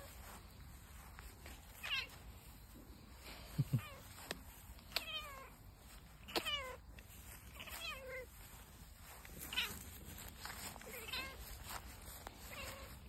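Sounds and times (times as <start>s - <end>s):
cat meowing: 1.8s - 2.1s, 4.9s - 5.6s, 6.2s - 6.8s, 10.8s - 11.5s, 12.4s - 13.0s.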